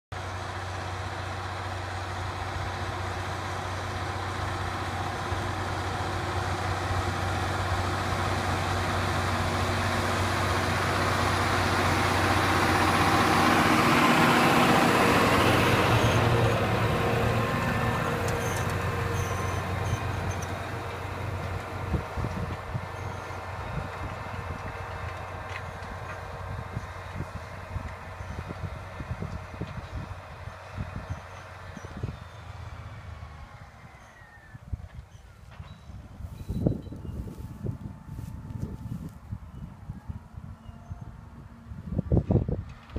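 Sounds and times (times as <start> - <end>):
tractor diesel engine under load: 0.1 - 42.9.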